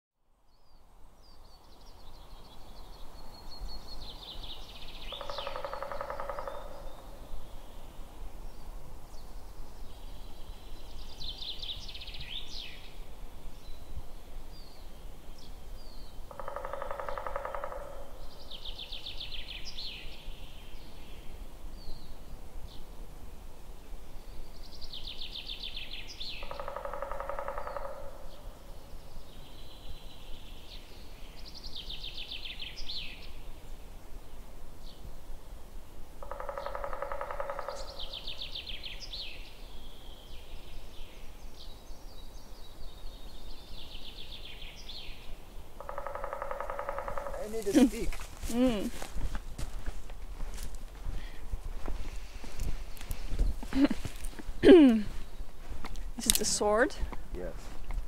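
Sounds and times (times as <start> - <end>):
steady low background noise: 0.3 - 58.0
songbird rapid trill: 4.7 - 7.0, 25.2 - 28.2, 36.2 - 40.9, 42.7 - 48.9
lower bird phrase: 47.0 - 49.0, 56.2 - 57.6.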